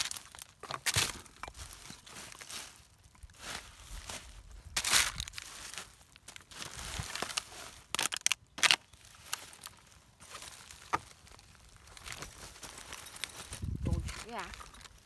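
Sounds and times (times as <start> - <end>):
dry leaves and litter rustling: 0.0 - 15.0
sharp crinkles and snaps: 0.0 - 15.0.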